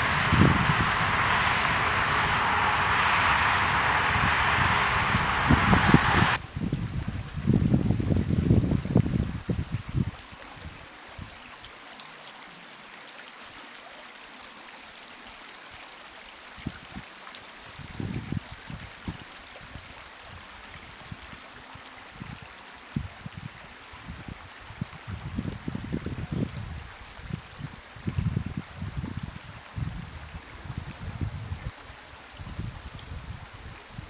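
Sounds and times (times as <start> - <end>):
wind buffeting microphone: 0.0 - 10.0
stream trickling over rocks: 6.6 - 34.0.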